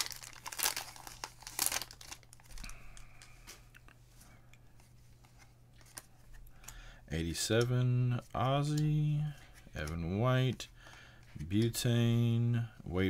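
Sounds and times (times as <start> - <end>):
wrapper ripping: 0.0 - 2.7
wrapper crinkling: 0.0 - 3.5.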